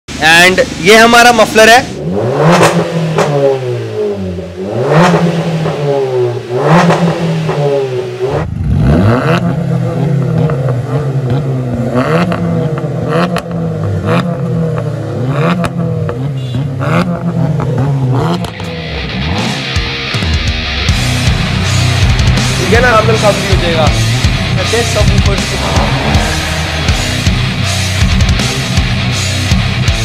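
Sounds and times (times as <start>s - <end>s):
car engine revving: 0.4s - 30.0s
exhaust cracks: 20.9s - 30.0s.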